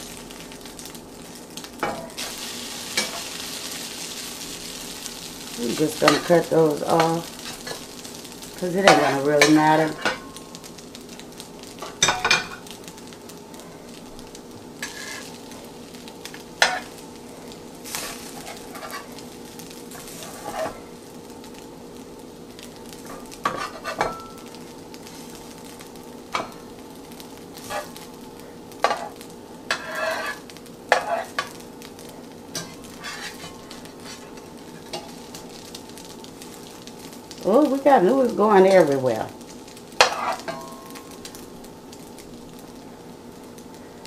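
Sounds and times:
noodles sizzling in a skillet: 0:00.0 - 0:44.0
tongs and spatula scraping pan: 0:05.6 - 0:07.9, 0:08.6 - 0:10.3, 0:14.8 - 0:15.4, 0:16.6 - 0:16.9, 0:17.9 - 0:19.2, 0:19.9 - 0:20.8, 0:23.1 - 0:24.4, 0:27.6 - 0:28.0, 0:28.8 - 0:31.6, 0:32.5 - 0:35.2, 0:40.0 - 0:40.7.

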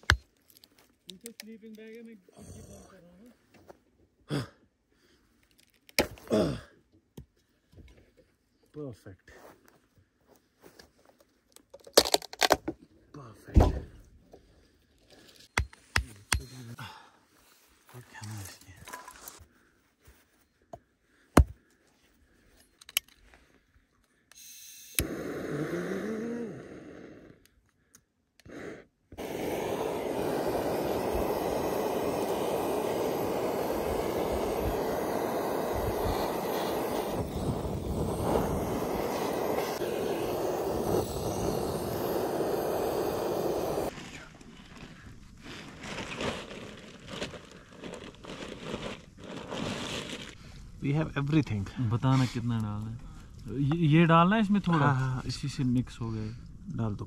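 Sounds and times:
gas torch hissing: 0:24.4 - 0:27.4, 0:28.4 - 0:43.9.

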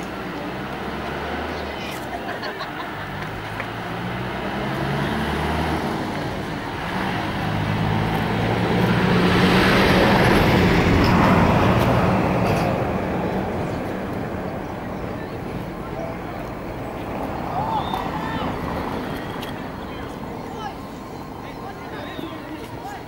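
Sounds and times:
road noise: 0:00.0 - 0:23.0
vehicle engine passing by: 0:00.0 - 0:23.0.

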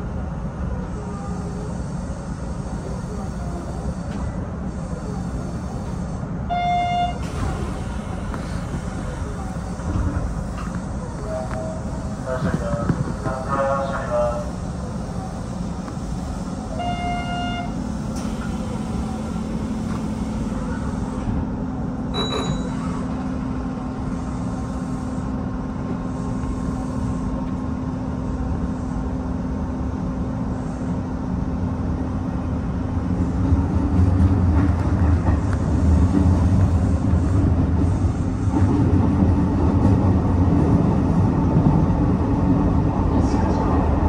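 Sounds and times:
train rail and running noise: 0:00.0 - 0:44.0
brief tone: 0:22.1 - 0:23.1.

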